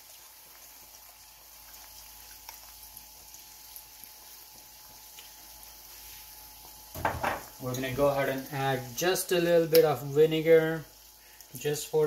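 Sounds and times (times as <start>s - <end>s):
small crackles: 0.0s - 6.8s
vegetables sizzling in a wok: 0.0s - 12.0s.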